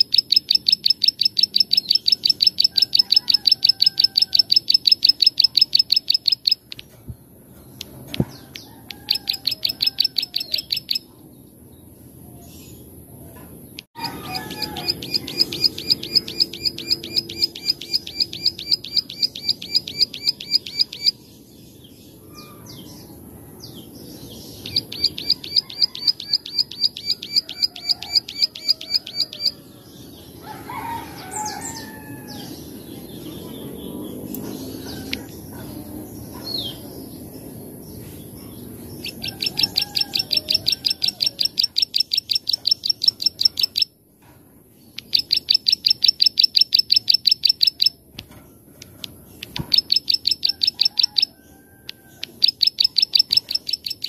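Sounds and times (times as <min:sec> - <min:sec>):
bird rapid clicking song: 0:00.0 - 0:07.0, 0:07.6 - 0:11.0, 0:13.8 - 0:21.2, 0:24.6 - 0:29.5, 0:39.0 - 0:43.9, 0:44.9 - 0:54.0.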